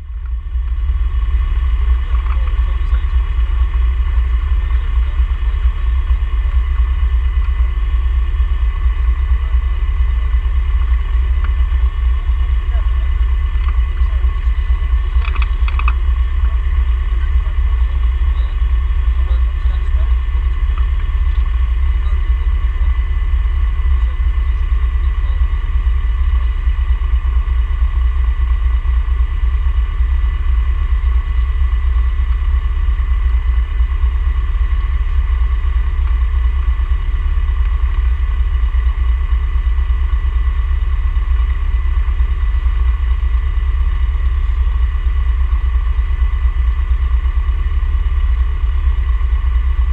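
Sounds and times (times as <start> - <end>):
race car engine running: 0.0 - 49.9.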